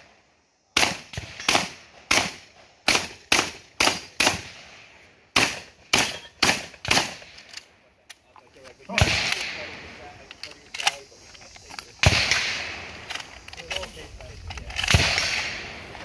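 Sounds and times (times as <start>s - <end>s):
shotgun shots echoing: 0.8s - 7.4s, 8.9s - 10.0s, 12.0s - 13.1s, 14.7s - 16.0s.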